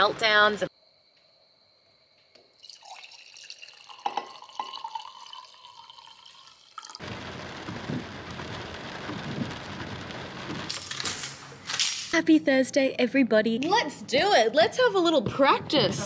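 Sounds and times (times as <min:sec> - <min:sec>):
wine glugging into glass: 0:02.6 - 0:07.0
steady hiss: 0:07.0 - 0:11.8.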